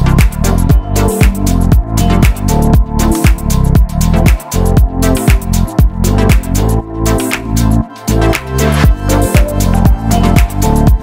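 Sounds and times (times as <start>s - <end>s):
electronic house music: 0.0s - 11.0s.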